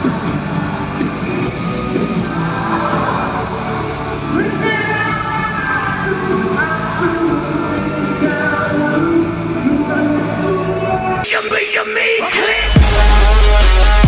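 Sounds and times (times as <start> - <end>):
person singing: 0.0 - 14.0
drums and cymbal beat: 11.2 - 14.0.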